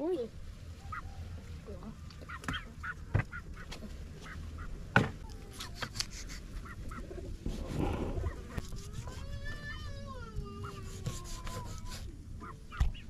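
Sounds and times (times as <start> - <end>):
chickens clucking: 0.0 - 9.4, 12.2 - 13.0.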